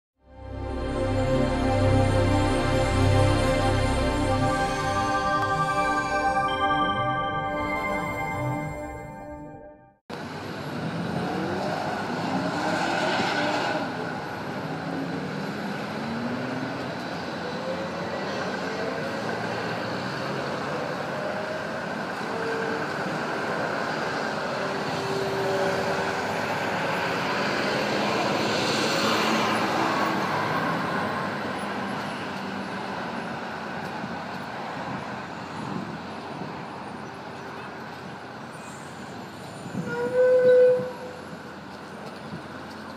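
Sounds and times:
street noise: 0.2 - 42.9
vehicle passing by: 10.7 - 21.2.

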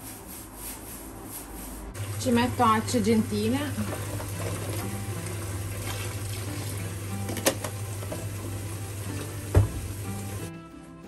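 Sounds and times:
tap water running into bucket: 2.0 - 10.5
faint background music: 2.0 - 11.0
knock: 9.5 - 9.8.

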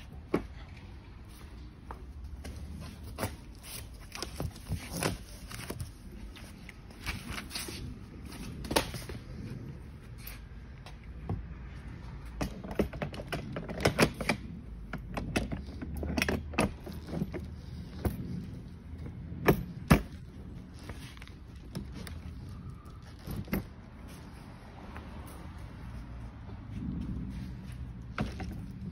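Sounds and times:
metal and plastic parts clattering: 12.4 - 24.4.

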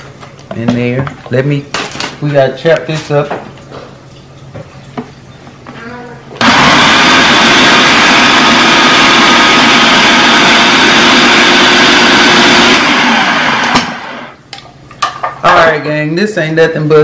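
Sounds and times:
food processor motor running: 6.4 - 14.4.

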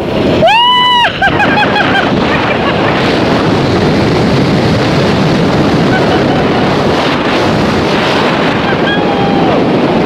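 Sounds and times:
wind roaring over microphone: 0.0 - 10.0.

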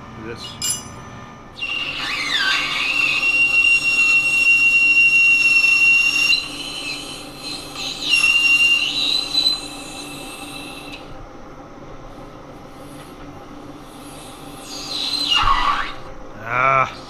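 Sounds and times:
lathe cutter squealing: 1.6 - 11.0, 14.0 - 16.1.

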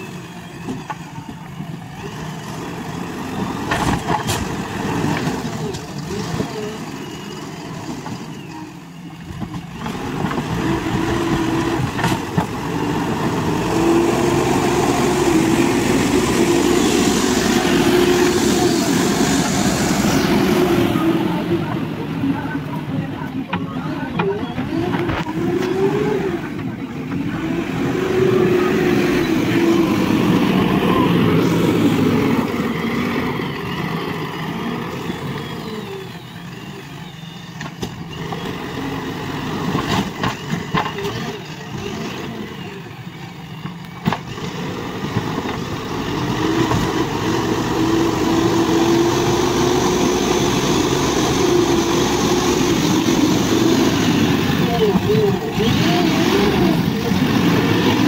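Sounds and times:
backhoe diesel engine revving: 0.0 - 58.0.

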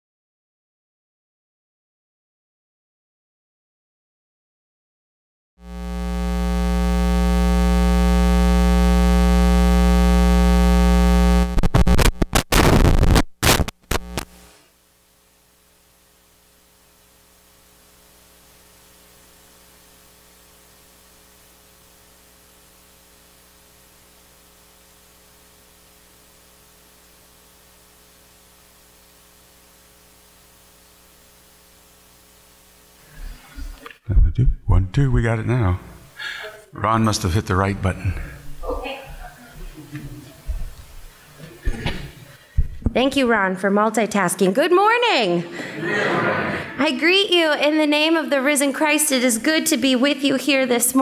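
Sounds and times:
crackling bursts: 5.6 - 14.6, 15.2 - 33.1
electrical mains buzz: 5.6 - 51.0.

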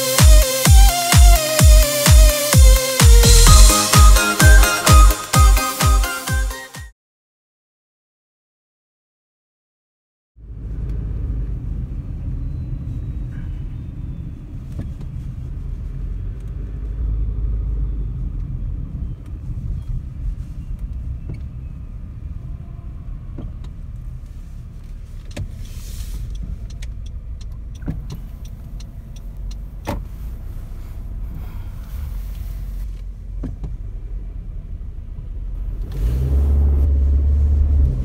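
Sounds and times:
cars and tram moving slowly: 10.4 - 38.0
low traffic rumble: 10.4 - 38.0
brief hiss: 25.6 - 26.3
sharp clicks and knocks: 26.2 - 30.1.

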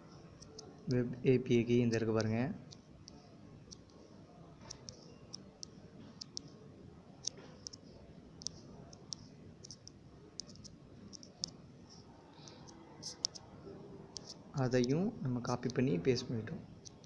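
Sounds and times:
faint small clicks: 1.9 - 4.0, 4.6 - 6.5, 8.4 - 13.4.

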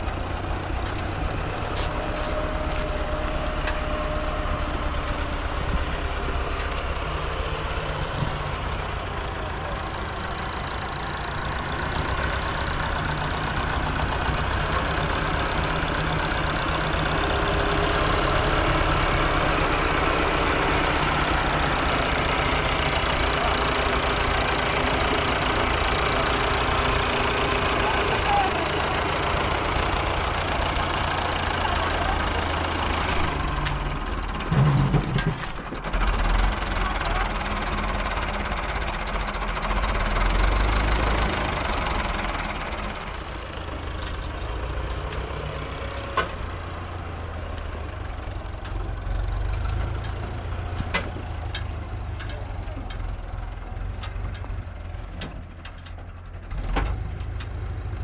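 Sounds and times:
engine rumbling: 0.0 - 58.0.

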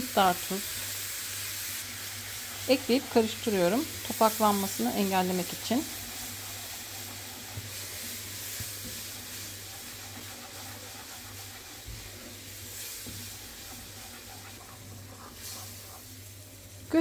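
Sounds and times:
mixture sizzling in frying pan: 0.0 - 17.0
wooden spoon scraping pan: 4.4 - 16.2.

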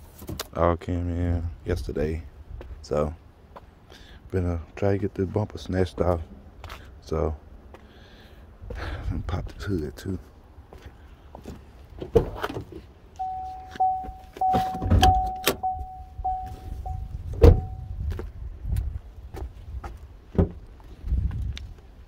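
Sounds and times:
car door and hood clunks: 12.0 - 17.8, 20.3 - 20.6
car warning chime pinging: 13.2 - 17.9
car door shutting thump: 14.4 - 15.8, 17.3 - 17.8, 20.4 - 20.6.

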